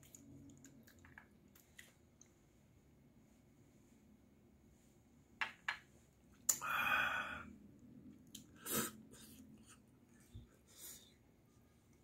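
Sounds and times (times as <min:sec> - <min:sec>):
faint chewing: 0:00.0 - 0:02.4
man exhaling loudly: 0:06.6 - 0:07.5.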